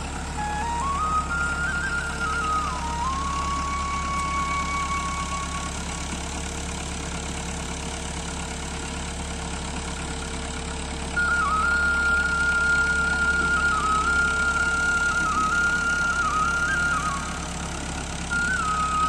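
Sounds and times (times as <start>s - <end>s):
flute-like melody: 0.0s - 6.9s, 11.2s - 19.0s
tractor diesel engine running: 0.0s - 19.0s.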